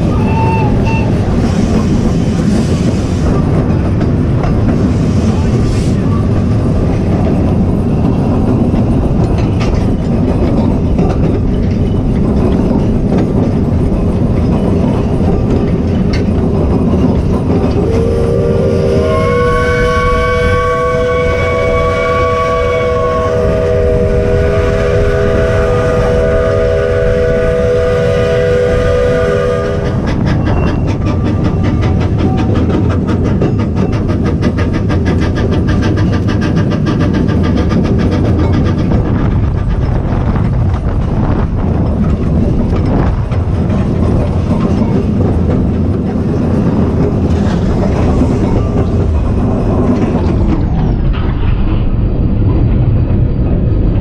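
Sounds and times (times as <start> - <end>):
train wheels rumbling on track: 0.0 - 54.0
steam whistle chord: 17.9 - 29.9.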